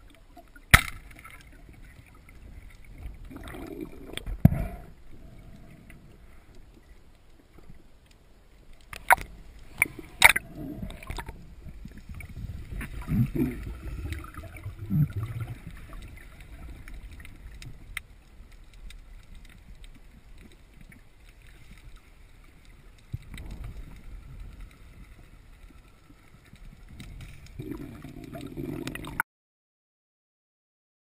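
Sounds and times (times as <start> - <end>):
underwater rumbling swish: 1.1 - 7.0, 9.0 - 29.2
faint clicks: 15.1 - 29.2.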